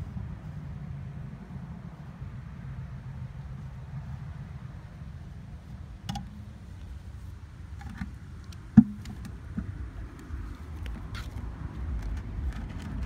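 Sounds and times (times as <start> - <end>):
low steady rumble: 0.0 - 13.0
plastic container clicks and knocks: 7.8 - 9.8.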